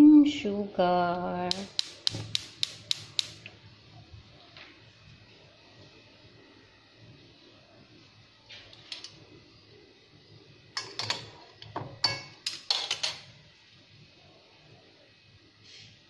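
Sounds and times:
metal pan clinking on stove grate: 10.8 - 11.3, 12.0 - 13.2.

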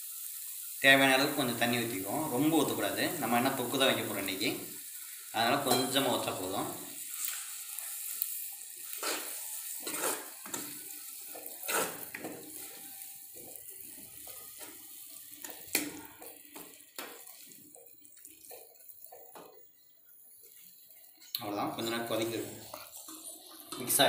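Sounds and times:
spoon scraping a pan: 7.1 - 24.0.

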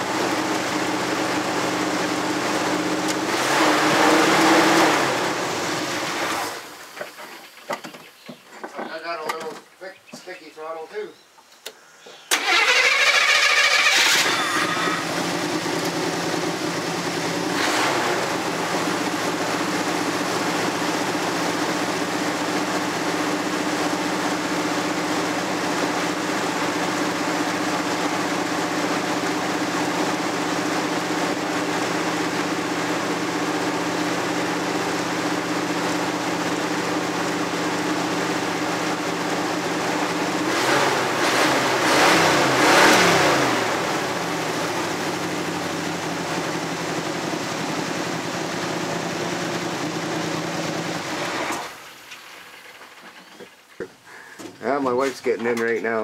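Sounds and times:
pickup engine starting and idling: 12.3 - 54.0.

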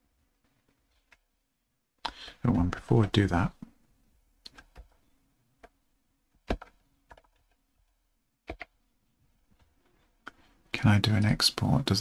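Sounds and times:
keyboard and mouse clicks: 4.4 - 5.0, 6.4 - 8.8.

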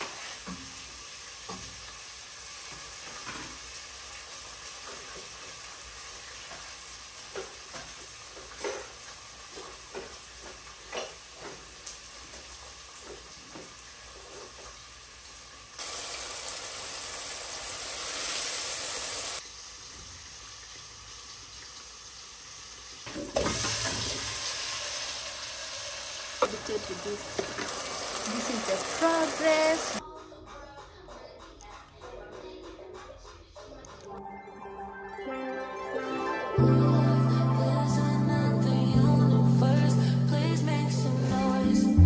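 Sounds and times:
food sizzling in a pot: 0.0 - 30.0.

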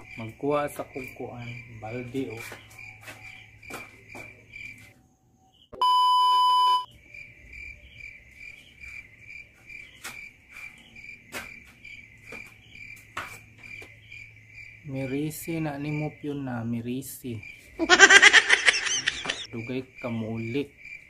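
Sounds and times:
crickets chirping: 0.0 - 5.8, 6.8 - 21.0
loud flat beep tone: 5.8 - 6.9.

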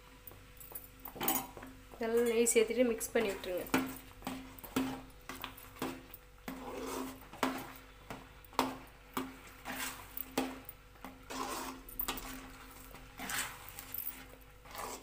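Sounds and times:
metal ladle scraping a pan: 6.5 - 7.8, 9.4 - 15.0.

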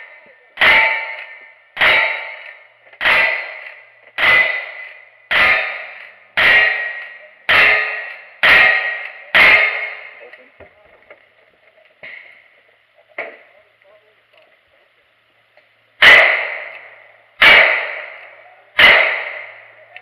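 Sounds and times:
rifle shots: 0.0 - 10.3, 16.0 - 19.8.

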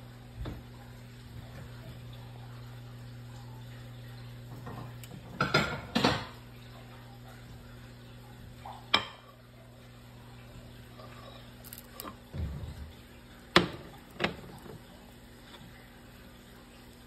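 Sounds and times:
pans clanking: 4.6 - 6.4.

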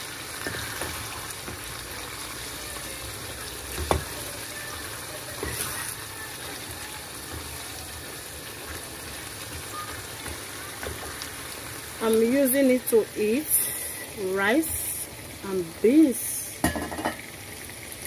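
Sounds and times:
sauce sizzling in a frying pan: 0.0 - 18.0
wooden spatula stirring: 0.4 - 12.2.

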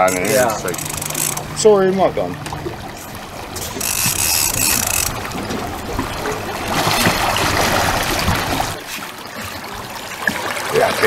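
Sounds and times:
fish thrashing water splashing: 2.4 - 11.0.

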